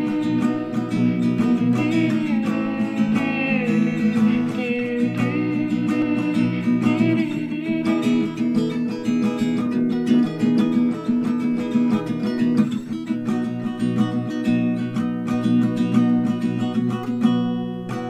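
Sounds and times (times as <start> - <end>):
person singing wordless melody: 0.0 - 8.6
acoustic guitar strumming: 0.0 - 18.0.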